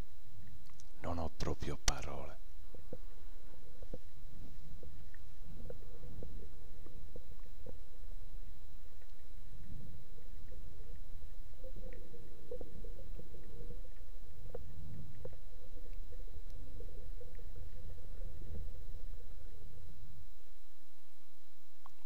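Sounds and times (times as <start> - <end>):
faint constant hum: 0.0 - 22.0
faint clicks: 0.4 - 1.0, 4.8 - 7.8, 8.8 - 19.5
underwater low rumble: 2.4 - 22.0.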